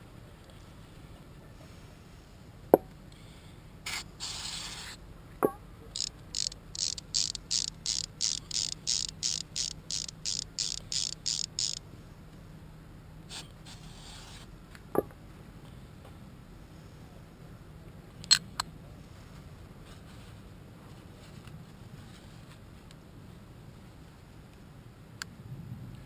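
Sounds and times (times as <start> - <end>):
hiss: 3.9 - 5.0, 13.3 - 14.5
sharp metallic click: 6.0 - 11.8.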